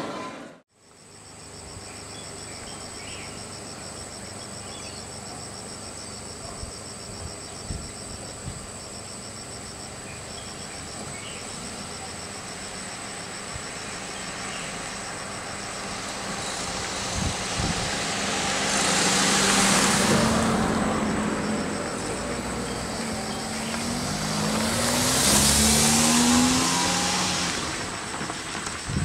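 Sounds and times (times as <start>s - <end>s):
insects chirping: 0.7s - 29.0s
car driving past: 14.0s - 28.9s.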